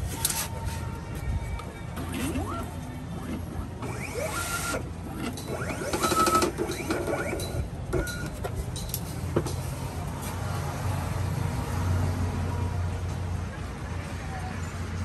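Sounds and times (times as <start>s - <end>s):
cutting plotter motors whining: 2.0s - 7.6s.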